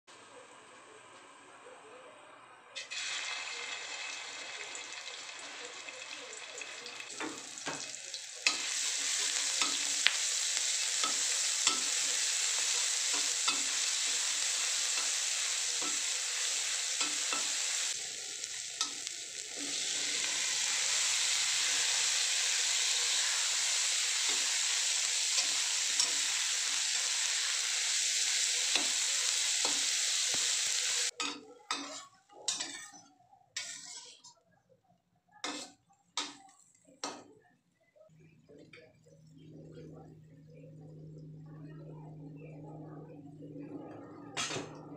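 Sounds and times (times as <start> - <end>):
food sizzling in a wok: 2.8 - 33.0, 33.6 - 34.2, 35.4 - 36.4
metal spatula scraping a wok: 31.1 - 34.3, 35.4 - 36.4.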